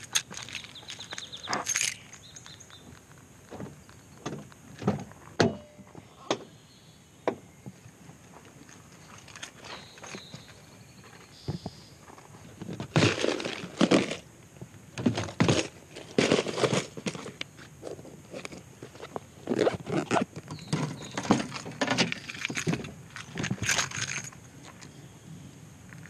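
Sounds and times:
fishing gear rustling and knocking: 0.0 - 5.3, 8.5 - 11.4, 15.0 - 25.0
footsteps on gravel: 0.0 - 5.4, 15.2 - 24.9.

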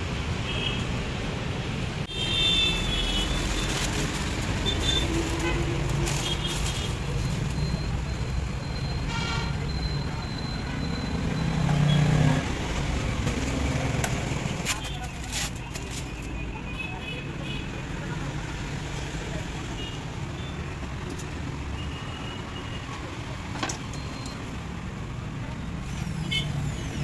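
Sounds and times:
road traffic: 0.0 - 27.0
vehicle horn toots: 9.1 - 9.6.

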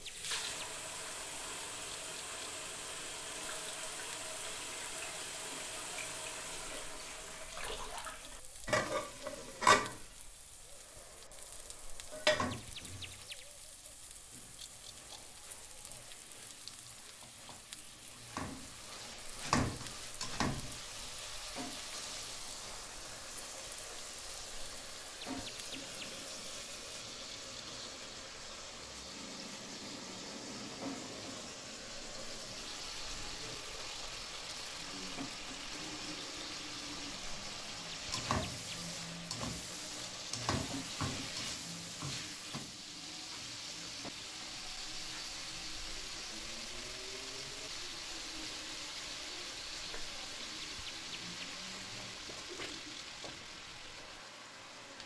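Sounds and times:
food sizzling in a wok: 0.0 - 55.0
utensils knocking on pan: 40.3 - 42.6.

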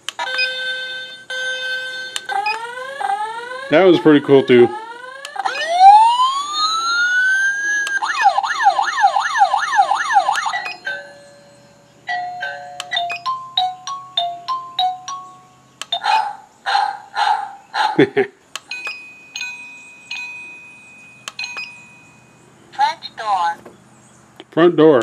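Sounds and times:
siren warble: 0.2 - 10.8
rising swoop alarm tone: 2.4 - 10.8
quick beeps: 13.0 - 13.3
stepped chime melody: 18.7 - 22.5.

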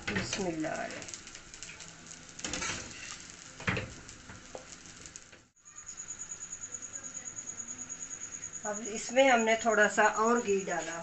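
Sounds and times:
light sizzle: 0.0 - 11.0
metal spoon scraping a pan: 2.4 - 3.3
cricket chirping: 5.6 - 11.0.

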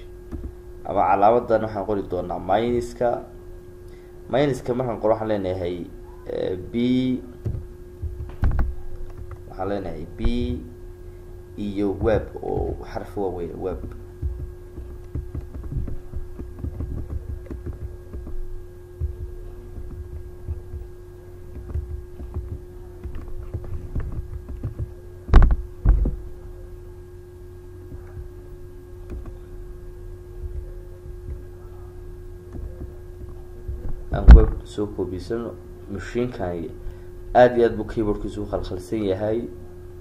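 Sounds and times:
steady hum: 0.0 - 40.0
computer keyboard typing: 13.7 - 20.9, 21.5 - 25.6
sharp loud knocks: 13.8 - 18.4.

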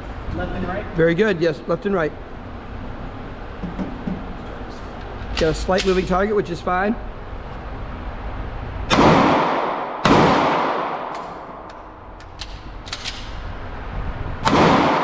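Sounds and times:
pistol shots echoing: 8.9 - 11.7, 14.4 - 15.0.

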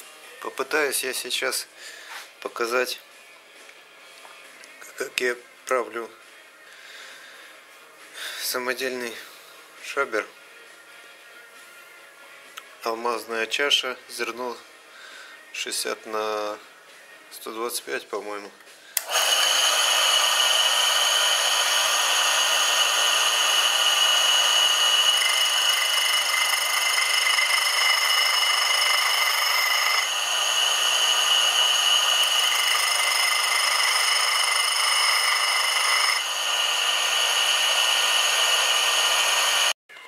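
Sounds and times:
grinding wheel whine and hiss: 19.0 - 39.8
higher grinding tone: 19.1 - 39.7.

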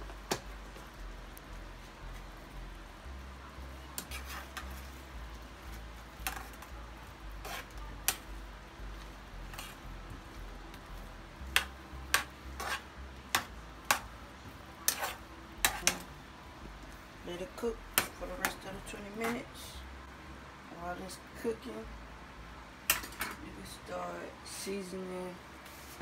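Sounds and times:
low hum: 0.0 - 23.7
metal spoon scraping skillet: 4.0 - 4.9, 7.4 - 8.2, 9.5 - 9.8, 11.6 - 14.0, 14.8 - 16.1.

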